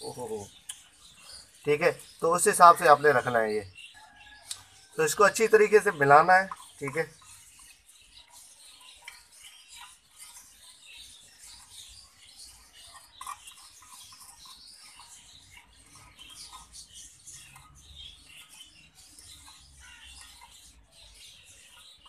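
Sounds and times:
spoon stirring in glass bowl: 6.1s - 20.8s.

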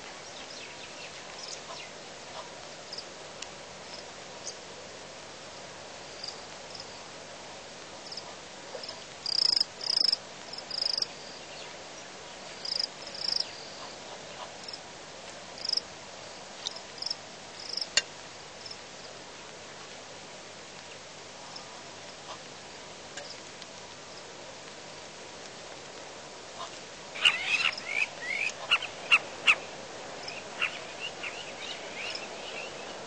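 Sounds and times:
steady hiss: 0.0s - 33.0s
mongooses chirping: 27.2s - 29.6s, 30.3s - 32.8s.

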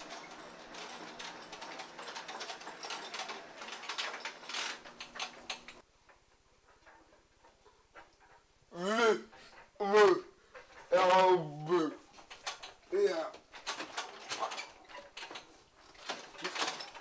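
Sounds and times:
wheelchair motor hum: 0.0s - 5.8s
clicking and rattling: 0.0s - 8.6s, 9.3s - 17.0s.

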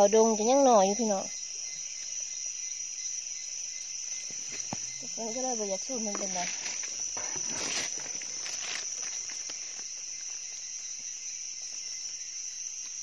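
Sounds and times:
insects droning: 0.0s - 13.0s
rustling footsteps: 6.0s - 10.4s.

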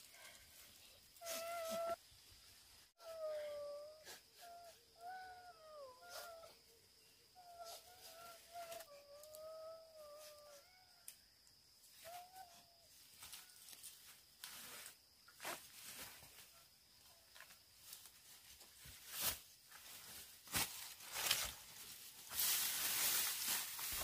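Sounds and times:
rustling and scraping: 17.3s - 24.0s.

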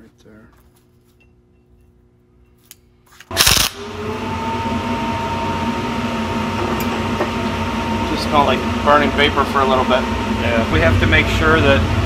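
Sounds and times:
steady whir and hiss: 3.2s - 12.0s
welding arc crackle: 3.3s - 3.8s.

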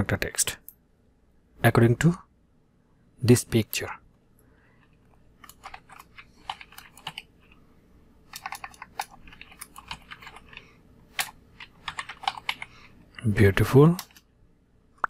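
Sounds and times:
keyboard keystrokes: 8.3s - 12.7s.

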